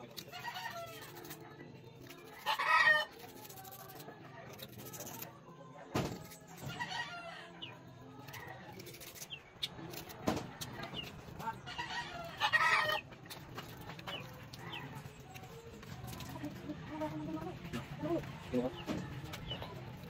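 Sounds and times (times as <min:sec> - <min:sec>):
chickens clucking: 0:10.5 - 0:20.0.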